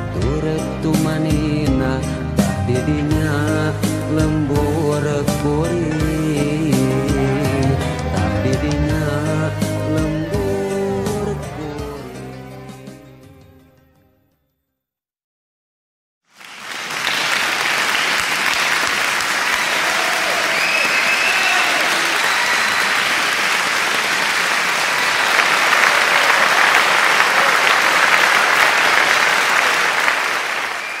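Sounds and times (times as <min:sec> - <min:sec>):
crowd applauding: 0:07.1 - 0:08.8, 0:16.3 - 0:31.0.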